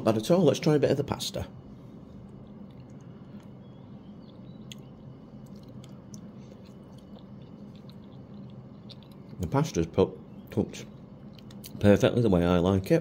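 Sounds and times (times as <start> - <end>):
steady low hum: 0.0 - 13.0
man chewing food: 1.7 - 9.6, 10.3 - 11.8
wet mouth clicks: 4.2 - 9.4.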